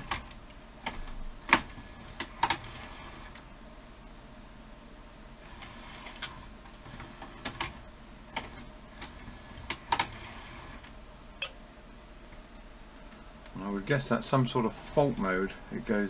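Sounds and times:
mechanism clicks and clacks: 0.0s - 3.5s, 5.5s - 11.6s
tape deck motor running: 0.0s - 3.5s, 5.4s - 11.0s.

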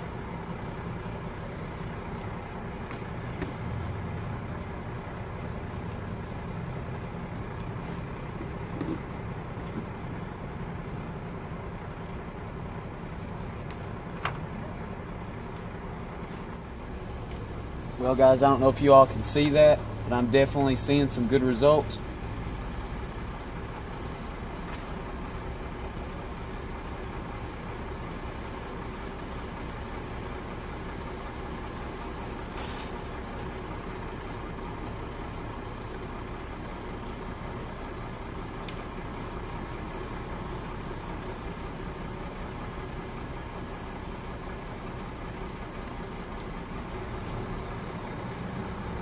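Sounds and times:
motor droning: 26.5s - 33.5s, 39.0s - 46.0s, 48.6s - 49.0s.

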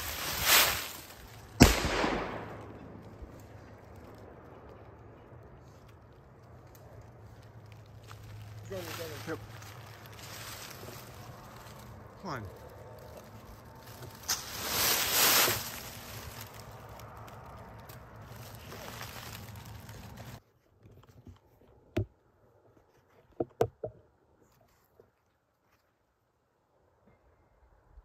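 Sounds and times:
twigs snapping and crunching: 0.0s - 20.4s
rustling of dry leaves: 0.0s - 20.8s.

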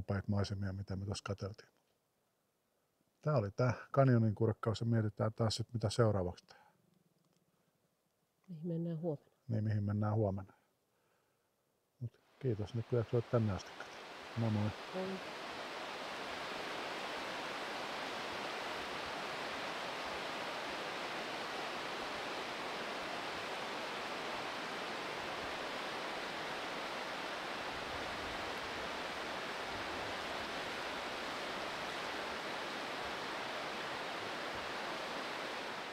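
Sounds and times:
river rapids rushing: 12.8s - 35.9s.

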